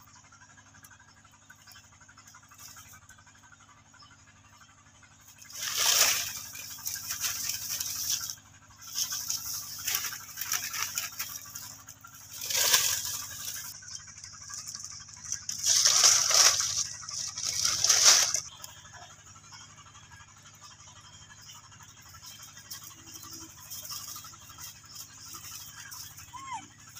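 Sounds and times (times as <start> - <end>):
dry leaves rustling and crackling: 5.4 - 18.6, 22.2 - 26.2.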